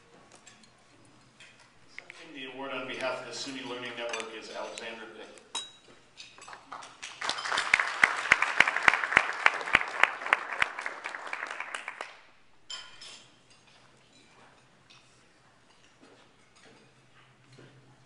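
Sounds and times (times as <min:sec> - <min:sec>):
audience applauding: 0:06.5 - 0:12.3
loud sharp close clapping: 0:06.5 - 0:12.3.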